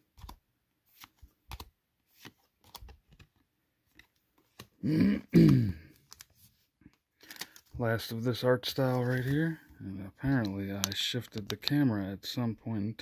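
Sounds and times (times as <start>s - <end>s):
cards clicking and sliding: 0.0s - 4.8s, 5.9s - 7.8s, 10.2s - 11.8s.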